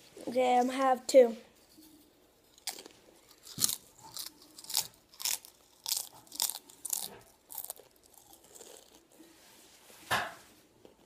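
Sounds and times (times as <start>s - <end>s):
tortilla chips crunching: 2.4s - 9.2s.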